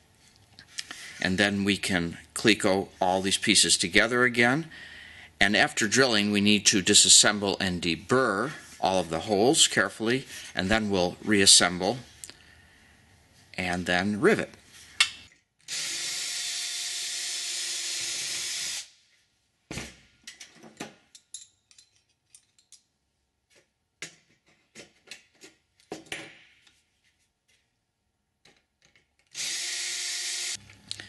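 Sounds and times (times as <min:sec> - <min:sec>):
cordless drill drilling metal: 0:15.6 - 0:19.0, 0:29.3 - 0:30.6
clicks and knocks of metal parts: 0:20.2 - 0:23.0.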